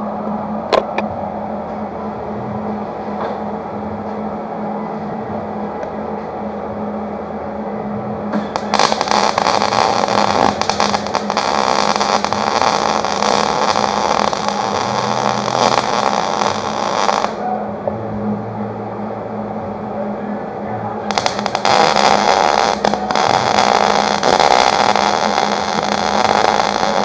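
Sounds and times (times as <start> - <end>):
welding arc crackling: 8.5 - 17.4, 21.1 - 27.0.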